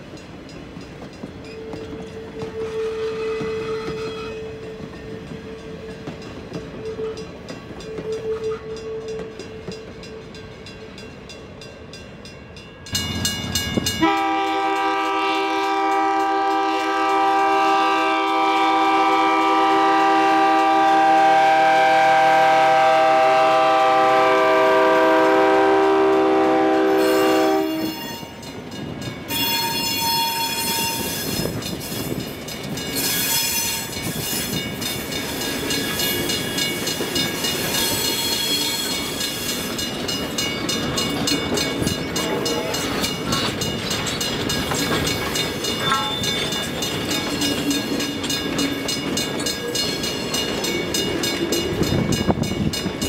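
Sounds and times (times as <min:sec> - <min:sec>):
locomotive rumbling by: 0:00.0 - 0:53.0
railcars rolling on jointed track: 0:00.0 - 0:53.0
locomotive air horn: 0:01.6 - 0:05.9, 0:06.8 - 0:09.7, 0:14.0 - 0:28.4.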